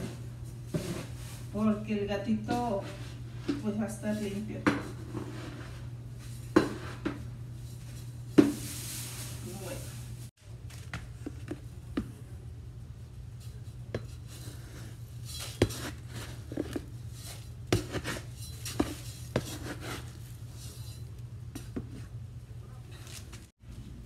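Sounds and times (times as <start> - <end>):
steady low hum: 0.0 - 24.0
litter scoop scraping through litter: 14.3 - 21.1.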